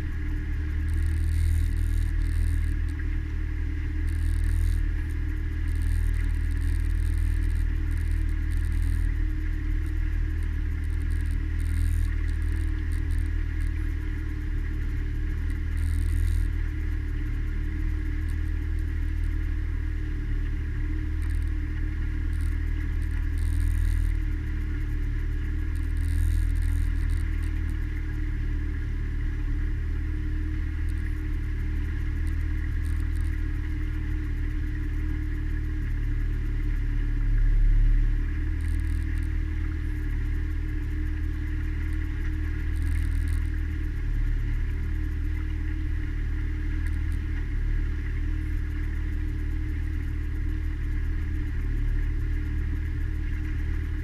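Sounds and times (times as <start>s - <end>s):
outboard motor droning: 0.0s - 54.0s.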